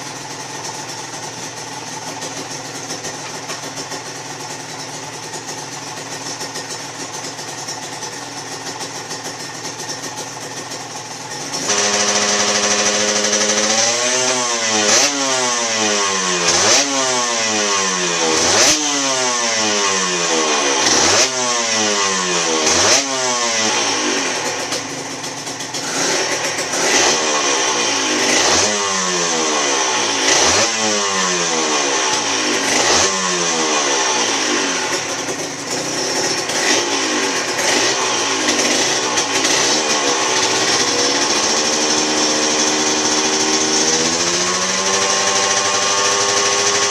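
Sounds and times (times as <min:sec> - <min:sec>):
two-stroke engine revving: 0:00.0 - 0:46.9.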